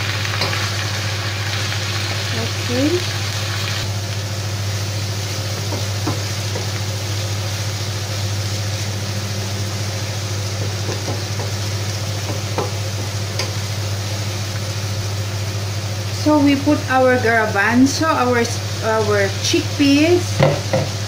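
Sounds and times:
steady low hum: 0:00.0 - 0:21.0
vegetables sizzling in a frying pan: 0:00.0 - 0:21.0.

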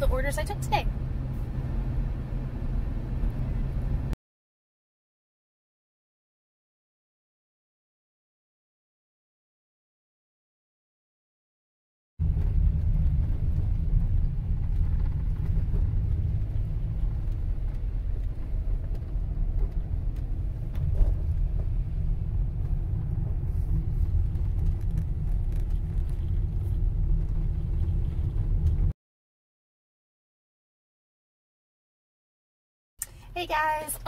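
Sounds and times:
car road and engine rumble: 0:00.0 - 0:04.2, 0:12.2 - 0:29.0, 0:33.0 - 0:34.0.

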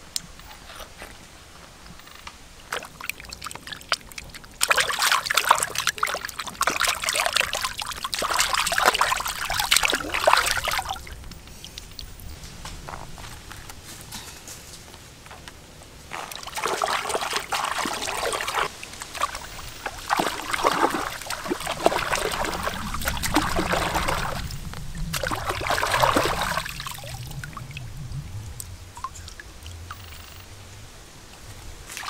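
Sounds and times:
hands splashing in water: 0:02.7 - 0:12.0, 0:16.1 - 0:24.5, 0:25.1 - 0:27.2.

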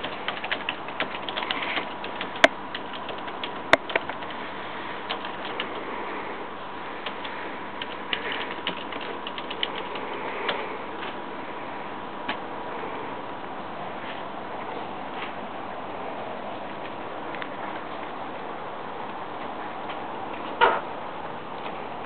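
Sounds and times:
keyboard typing clicks: 0:00.0 - 0:04.4, 0:05.1 - 0:05.8, 0:07.0 - 0:10.6.

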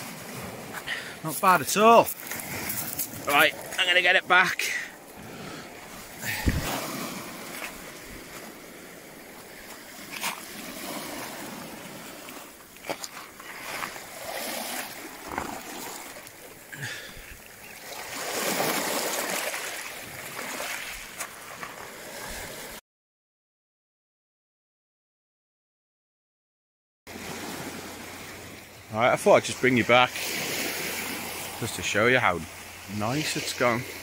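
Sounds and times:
waves washing over shingle: 0:00.0 - 0:22.8, 0:27.1 - 0:34.0
sharp clicks and splashes: 0:09.6 - 0:11.6, 0:12.2 - 0:16.6.

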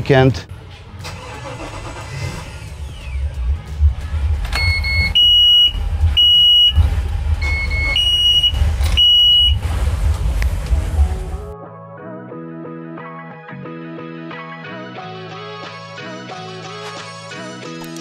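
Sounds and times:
boat engines rumbling: 0:03.3 - 0:11.5
loud electronic dash beeps: 0:04.5 - 0:09.7.

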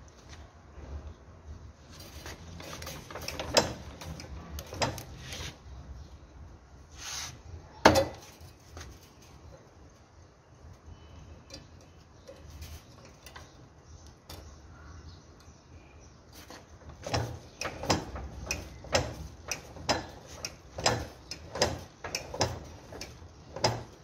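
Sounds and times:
metallic clacking of machine: 0:02.2 - 0:05.2, 0:16.5 - 0:24.0.

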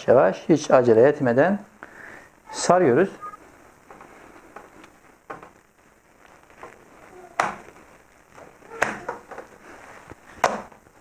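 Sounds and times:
dough rolled by hand: 0:03.8 - 0:11.0.

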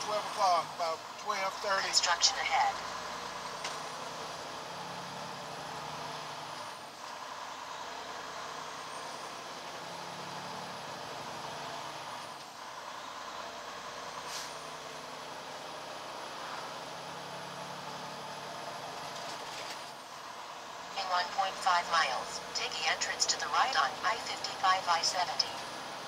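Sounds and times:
road noise: 0:00.0 - 0:26.0
truck engine drone: 0:00.0 - 0:26.0.

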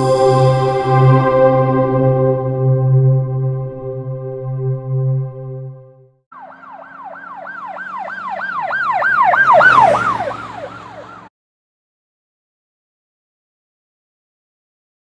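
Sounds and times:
low hum: 0:00.0 - 0:06.1
siren yelping: 0:06.3 - 0:11.3.

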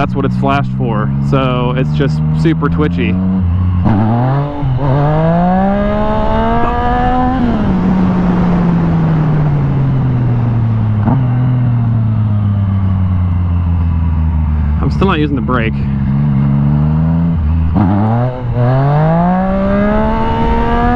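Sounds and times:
motorcycle engine accelerating: 0:00.0 - 0:20.9
wind rushing: 0:03.8 - 0:11.0.

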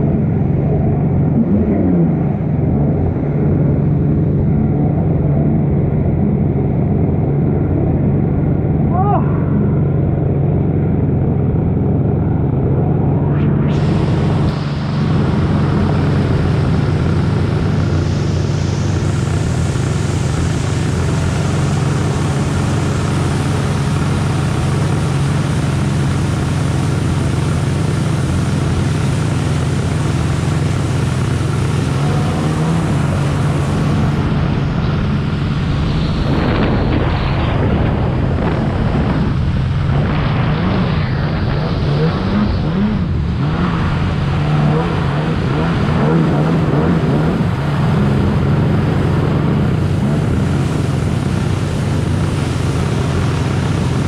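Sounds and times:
jet ski engine running: 0:00.0 - 0:54.0
rush of spray and wind: 0:11.7 - 0:54.0.

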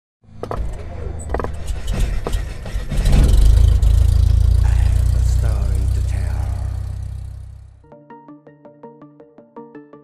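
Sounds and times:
deep bass hit: 0:02.8 - 0:07.8
sustained low drone: 0:03.1 - 0:07.8.

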